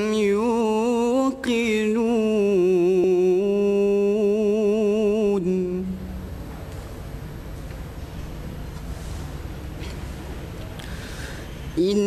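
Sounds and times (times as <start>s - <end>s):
man reciting in melodic style: 0.0s - 6.2s, 11.7s - 12.0s.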